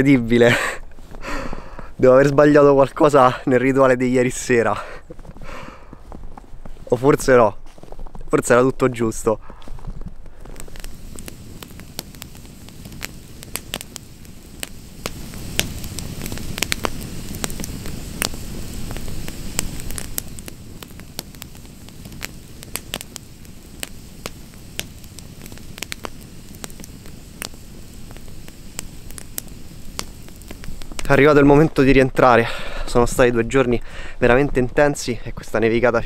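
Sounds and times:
campfire crackling and popping: 0:00.0 - 0:36.0.

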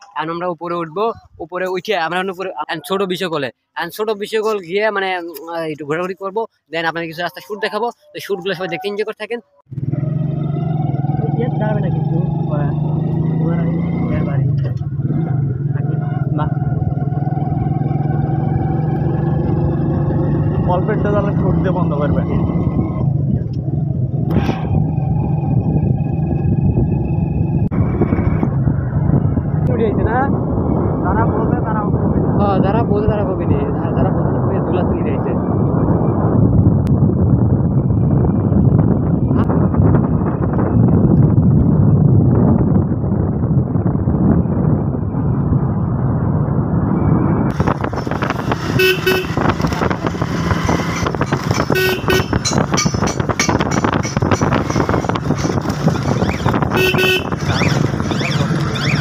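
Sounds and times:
motorcycle engine and wind rumble: 0:09.7 - 0:59.0
motorcycle engine running: 0:47.5 - 0:59.0
motorcycle horn beeping: 0:48.7 - 0:49.6, 0:51.6 - 0:52.9, 0:56.7 - 0:57.7.

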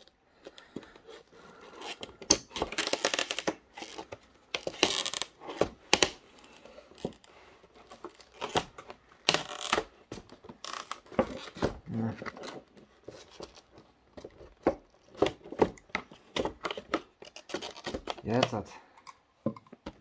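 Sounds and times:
plastic packaging rustling: 0:00.0 - 0:18.6
plastic packaging clicks: 0:02.2 - 0:05.3, 0:08.1 - 0:11.5.

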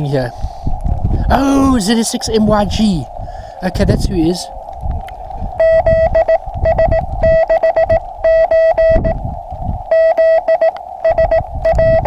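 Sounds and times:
receiver hiss: 0:00.0 - 0:12.0
low rumble: 0:00.6 - 0:12.0
morse code tone: 0:05.6 - 0:09.2, 0:09.9 - 0:12.0.

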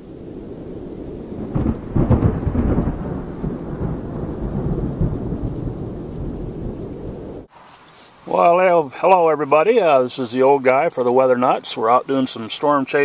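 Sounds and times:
thunder rumbling: 0:00.0 - 0:07.5
steady rain: 0:00.0 - 0:13.0.

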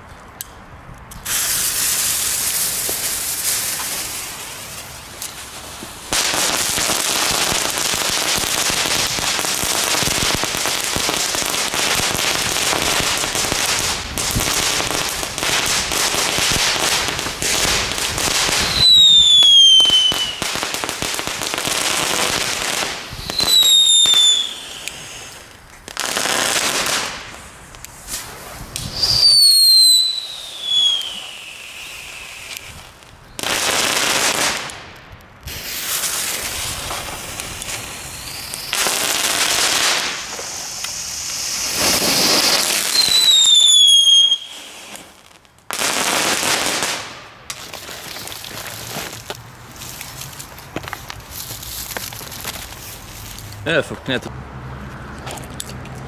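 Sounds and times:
fireworks crackling spray: 0:01.1 - 0:54.3
firework bursts: 0:01.2 - 0:54.2
falling firework whistle: 0:01.3 - 0:04.2, 0:18.4 - 0:20.6, 0:23.1 - 0:25.4, 0:28.1 - 0:33.7, 0:35.5 - 0:45.2.

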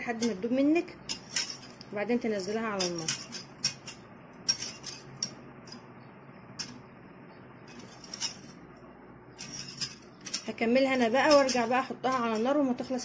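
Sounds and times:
whisk clinking against metal pan: 0:02.7 - 0:05.8, 0:09.4 - 0:12.6.

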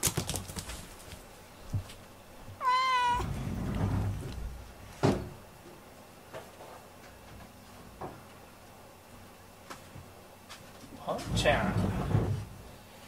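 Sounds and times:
cat meowing: 0:02.6 - 0:03.3.

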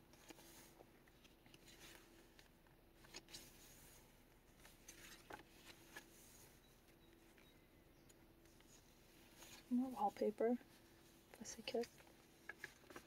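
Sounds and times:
faint steady hum: 0:00.0 - 0:13.0
paper rustling: 0:00.1 - 0:06.6, 0:08.4 - 0:10.2, 0:10.8 - 0:13.0.

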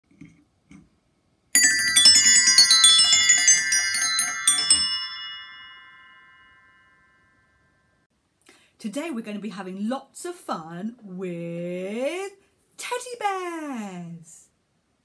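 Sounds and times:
tuned metal percussion notes: 0:01.6 - 0:07.1.

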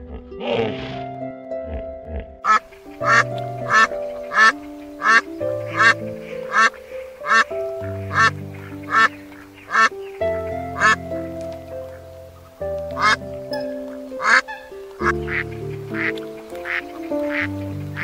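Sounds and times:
soft background music: 0:00.0 - 0:18.0
duck quacking: 0:02.4 - 0:10.0, 0:10.7 - 0:11.1, 0:12.9 - 0:18.0.

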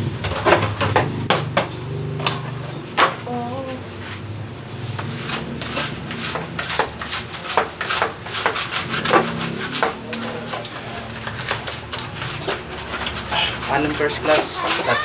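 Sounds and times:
brisk scraping strokes: 0:05.0 - 0:15.0.

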